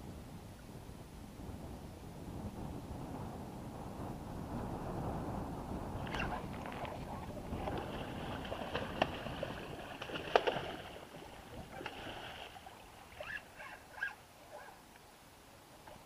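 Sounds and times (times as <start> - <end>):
fish thrashing water splashes: 7.5 - 12.8.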